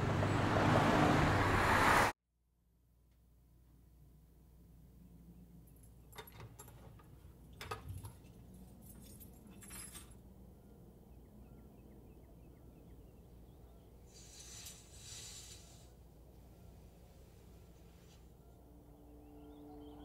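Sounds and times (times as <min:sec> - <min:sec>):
keys jangling: 0:08.5 - 0:10.2
rustling hiss: 0:14.1 - 0:16.0.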